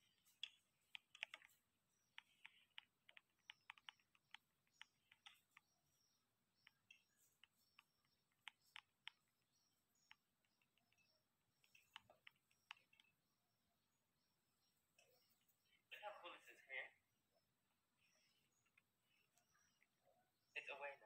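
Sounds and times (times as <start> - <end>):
fingers tapping on smartphone: 0.0 - 13.3.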